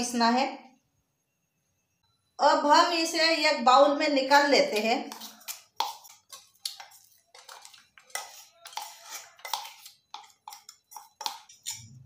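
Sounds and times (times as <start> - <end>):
metal jar scraping steel bowl: 4.6 - 12.0.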